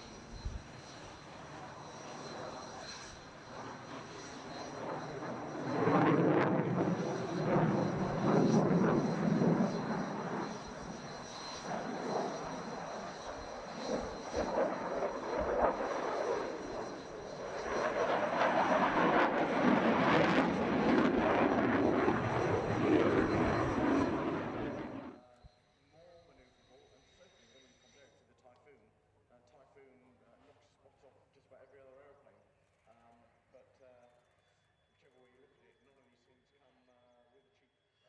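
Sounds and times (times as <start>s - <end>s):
fighter jet rumble overhead: 0.0s - 25.2s.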